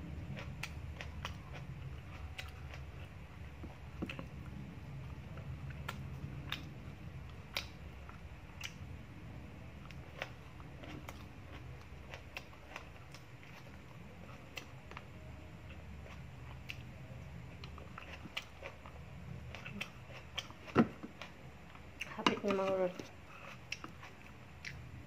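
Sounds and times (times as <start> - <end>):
low steady hum: 0.0 - 25.0
mouth chewing: 19.5 - 21.4.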